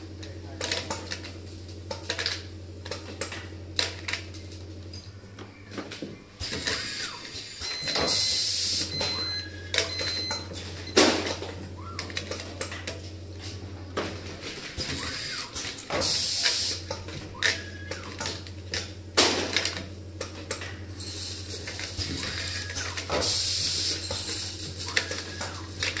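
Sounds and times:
machine low hum: 0.0s - 26.0s
clicks and knocks of parts: 0.2s - 6.8s, 9.7s - 20.8s, 23.9s - 26.0s
air hiss: 16.0s - 16.8s.

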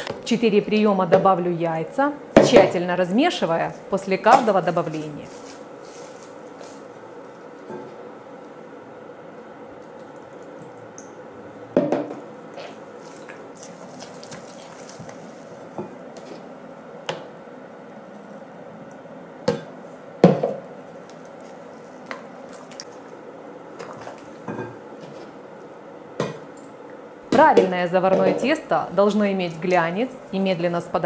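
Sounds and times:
wet squelching dough: 12.6s - 15.8s, 21.1s - 23.2s.

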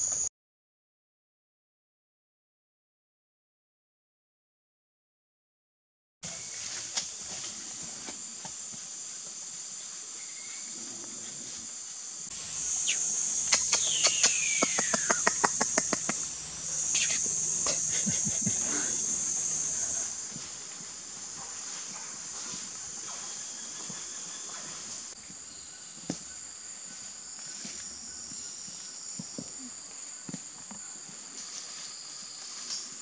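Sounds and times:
insects chirping in chorus: 6.3s - 33.0s
sharp clicks: 13.4s - 16.3s.

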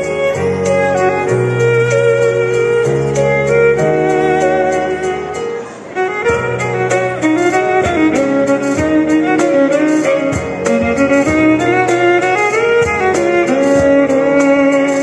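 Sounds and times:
violin melody: 0.0s - 15.0s
steady drum beat: 6.2s - 15.0s.

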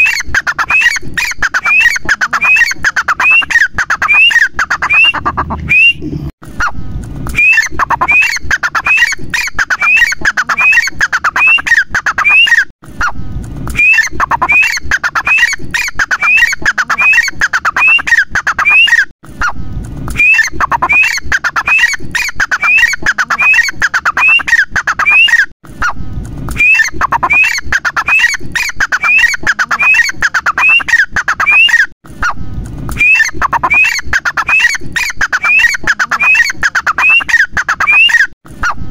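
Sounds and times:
bird calling shrill notes: 0.0s - 6.0s, 7.4s - 12.7s, 13.8s - 19.1s, 20.2s - 25.5s, 26.6s - 31.9s, 33.0s - 38.3s.

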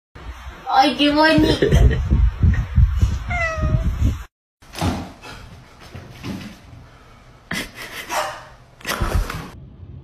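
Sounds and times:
cat meowing: 3.3s - 3.8s.

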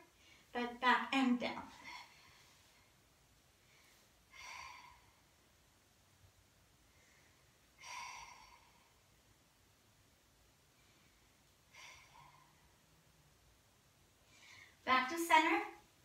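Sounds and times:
woman breathing out: 3.7s - 5.3s, 6.9s - 9.0s, 11.0s - 12.7s.

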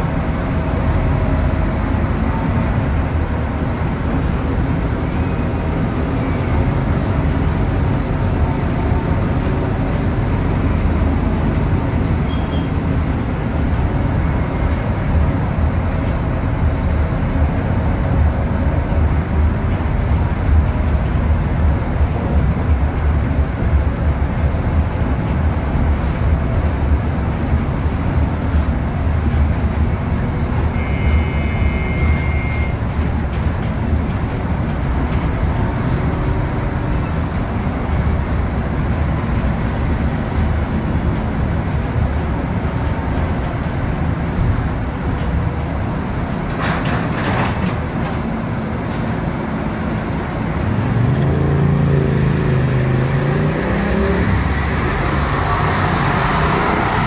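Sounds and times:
diesel bus engine running: 0.0s - 57.0s
road and body noise: 0.0s - 57.0s
short electronic beep: 30.8s - 32.8s.

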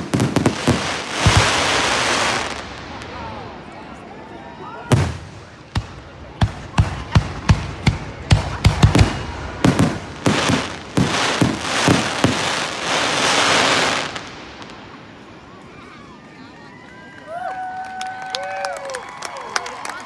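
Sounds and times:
continuous rush of sound: 0.0s - 20.0s.

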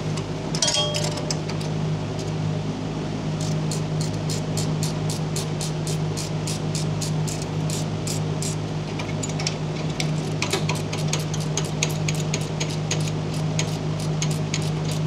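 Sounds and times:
steady low hum: 0.0s - 15.0s
ratcheting wrench clicking: 3.4s - 8.6s.

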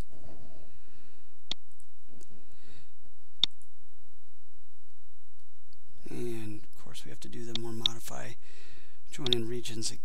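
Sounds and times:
computer mouse clicks: 3.4s - 3.7s, 7.5s - 8.0s, 9.2s - 9.5s.

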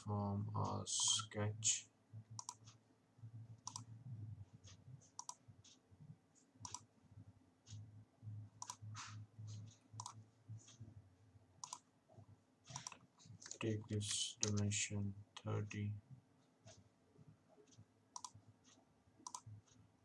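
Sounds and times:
faint low hum: 0.0s - 20.0s
mouse buttons clicking: 2.4s - 2.8s, 4.7s - 5.8s, 8.6s - 10.8s, 11.6s - 11.8s, 12.7s - 14.8s, 17.7s - 19.6s.

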